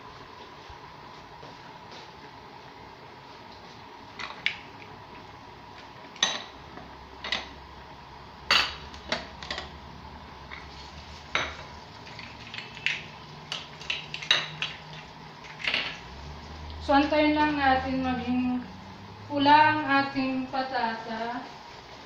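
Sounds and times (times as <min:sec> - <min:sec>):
dishes and cutlery clinking: 0:06.2 - 0:06.6, 0:11.3 - 0:11.7, 0:12.6 - 0:16.0.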